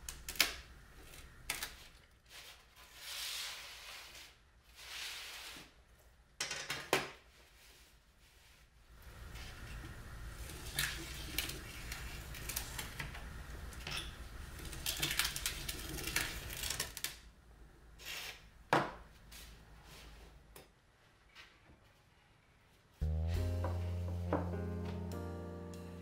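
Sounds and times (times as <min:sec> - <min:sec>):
low steady hum: 0:23.0 - 0:26.0.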